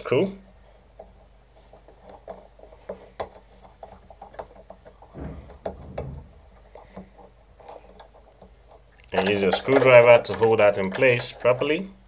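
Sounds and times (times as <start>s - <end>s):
handling noise: 5.0s - 7.2s.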